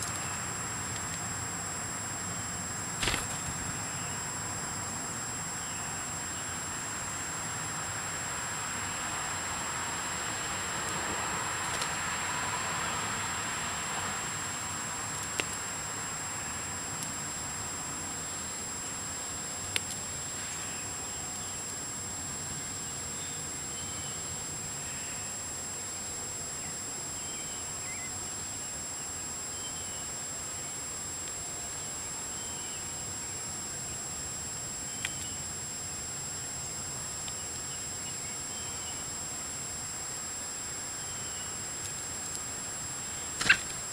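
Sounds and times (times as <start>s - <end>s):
high-pitched insect drone: 0.0s - 10.9s, 15.6s - 43.9s
soft outdoor hiss: 0.0s - 43.9s
sharp clicks: 3.0s - 3.7s, 43.4s - 43.8s.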